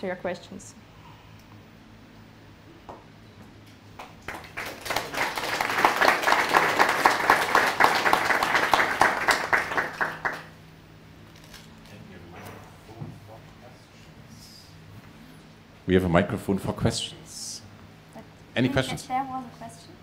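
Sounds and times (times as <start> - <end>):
audience applauding: 4.0 - 10.6.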